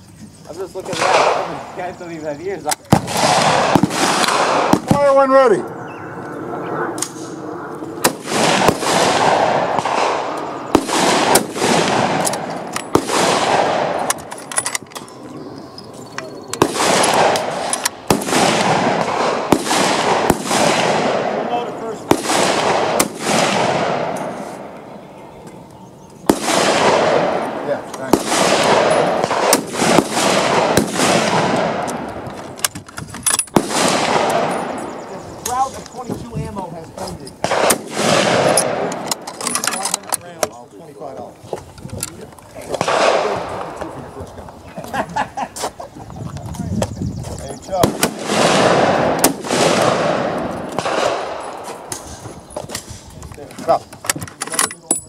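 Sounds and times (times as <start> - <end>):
rapid overlapping gunfire: 0.8 - 1.9, 2.9 - 5.6, 8.0 - 14.3, 16.6 - 24.8, 26.3 - 32.4, 33.5 - 35.7, 37.4 - 40.1, 42.6 - 44.2, 47.7 - 51.9
rifle shots: 0.8 - 1.9, 2.6 - 5.6, 8.0 - 15.0, 16.6 - 24.8, 26.2 - 35.7, 37.4 - 40.1, 42.6 - 44.2, 47.7 - 52.2
sharp single gunshots: 0.9 - 1.9, 2.7 - 5.6, 8.0 - 14.3, 16.6 - 24.8, 26.2 - 32.3, 33.4 - 35.7, 37.4 - 39.3, 42.7 - 44.0, 47.7 - 52.2
echoing rumble: 3.0 - 32.6
rifle bolt being worked: 14.0 - 15.2.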